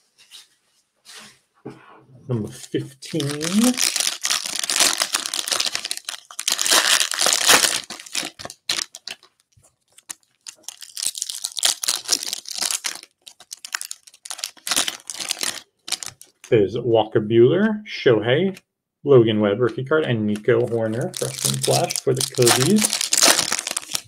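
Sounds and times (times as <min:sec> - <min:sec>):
plastic wrapper crinkling: 0:02.6 - 0:16.5, 0:20.3 - 0:24.0.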